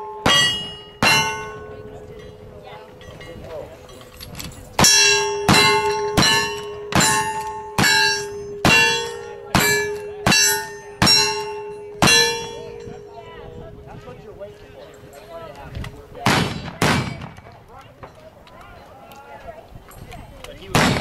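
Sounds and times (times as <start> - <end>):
steel target clanging: 0.0 - 2.4, 3.0 - 13.5
gunshots: 16.2 - 17.6, 20.7 - 21.0.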